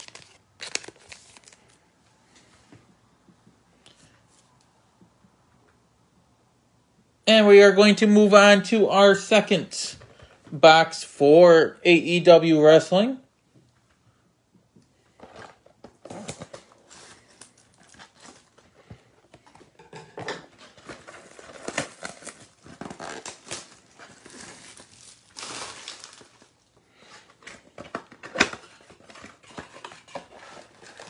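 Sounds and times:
plastic wrap crinkling: 0.0s - 1.8s, 20.5s - 26.7s.

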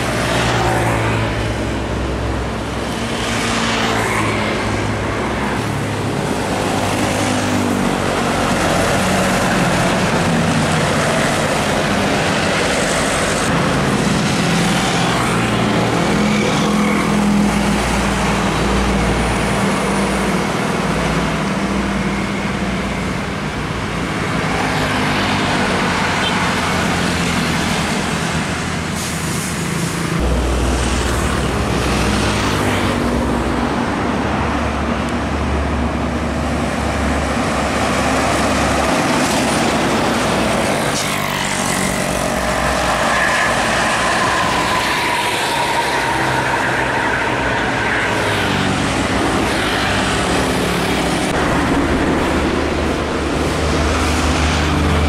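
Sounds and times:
highway traffic driving past: 0.0s - 55.0s
deep truck engine drone: 30.1s - 44.3s, 47.2s - 55.0s.

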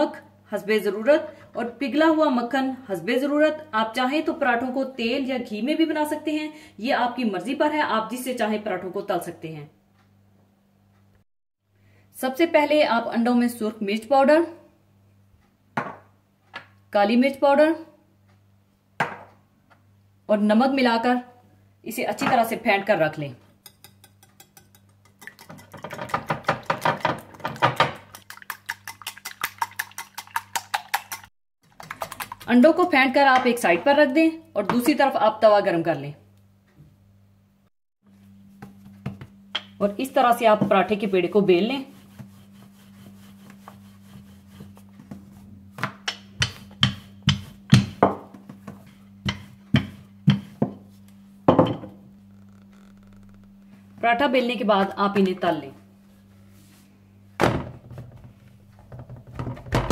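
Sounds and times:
utensil clicking against bowl: 23.6s - 26.8s, 28.1s - 32.5s
rolling pin knocking on board: 45.7s - 50.8s.

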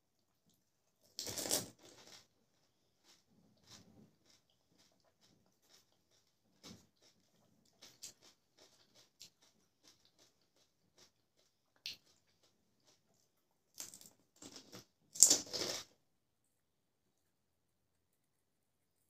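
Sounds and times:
crisp shells crunching when chewed: 1.0s - 15.9s.

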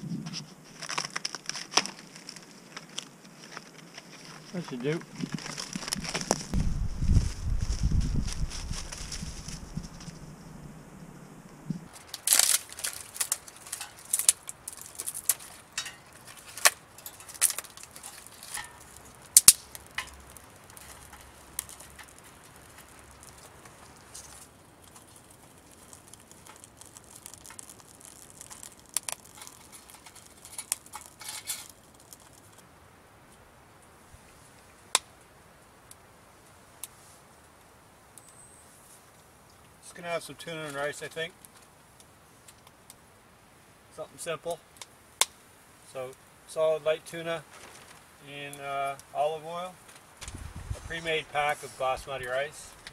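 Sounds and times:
kindling cracking and snapping: 0.7s - 10.4s, 11.4s - 32.7s.

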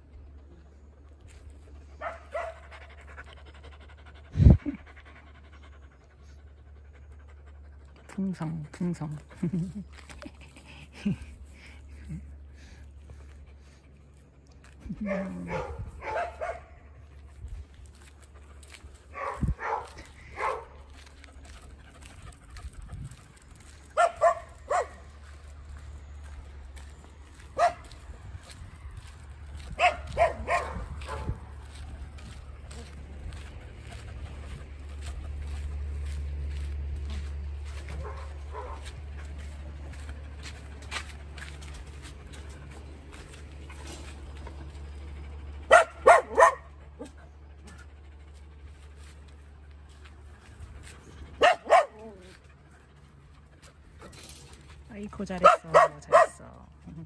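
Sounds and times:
dog panting: 0.6s - 57.0s
dog barking: 2.0s - 2.7s, 15.0s - 16.8s, 19.1s - 20.8s, 24.0s - 25.0s, 27.6s - 27.9s, 29.8s - 31.4s, 38.0s - 38.8s, 45.7s - 47.1s, 51.4s - 52.2s, 55.4s - 56.5s.

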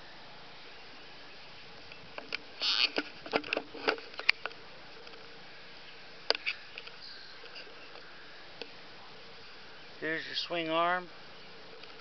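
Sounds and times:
camera handling noise: 2.2s - 5.2s, 6.3s - 8.0s.

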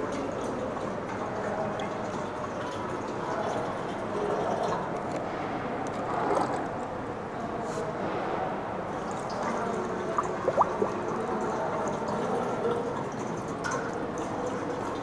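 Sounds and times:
water pouring into metal tank: 0.0s - 4.9s, 8.9s - 15.0s.

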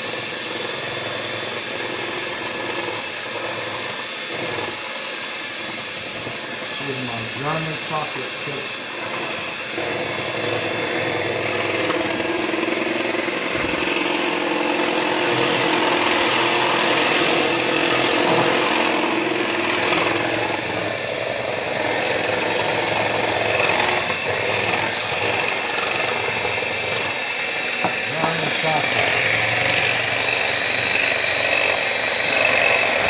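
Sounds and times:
electric hand mixer whirring: 0.0s - 33.0s.

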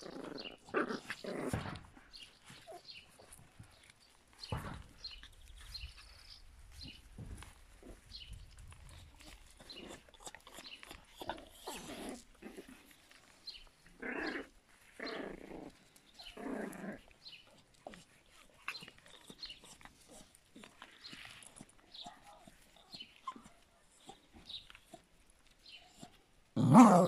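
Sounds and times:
puppy growling: 0.0s - 3.4s, 9.2s - 13.2s, 13.9s - 17.2s, 26.0s - 27.0s.

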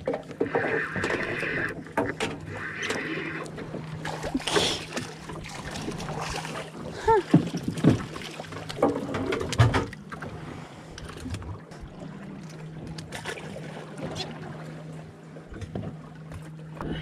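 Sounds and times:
low hum: 0.0s - 17.0s
water sounds: 0.0s - 17.0s
fish splashing: 0.4s - 8.8s.

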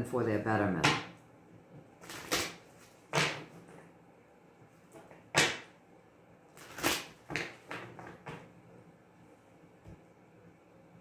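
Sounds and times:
cards being shuffled: 6.6s - 8.2s.

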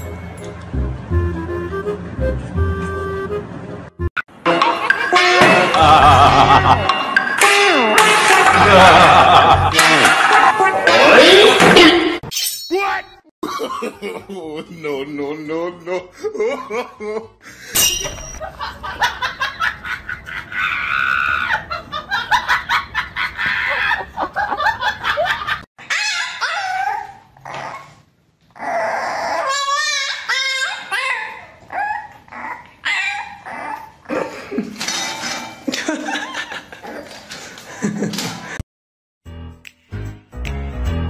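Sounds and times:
people laughing: 5.6s - 6.9s, 8.5s - 12.0s, 13.4s - 15.2s, 15.9s - 17.7s
puppy whining: 25.8s - 34.2s.

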